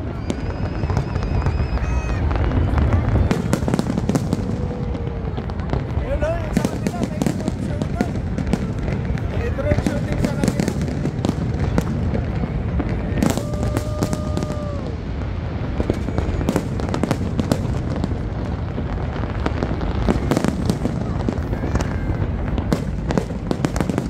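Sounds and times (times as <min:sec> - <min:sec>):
fireworks bangs and crackling: 0:00.0 - 0:24.0.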